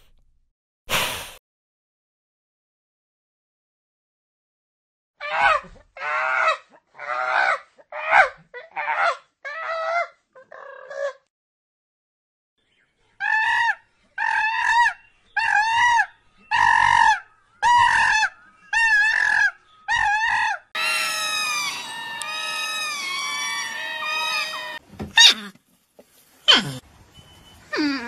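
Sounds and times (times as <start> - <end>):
many overlapping animal calls: 13.2 - 24.8
animal calling: 13.2 - 25.5.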